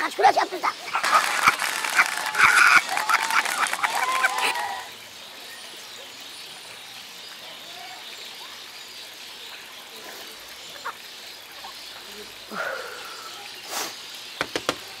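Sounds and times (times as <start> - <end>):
faint steady hiss: 0.0 - 15.0
faint bird chirps: 4.2 - 15.0.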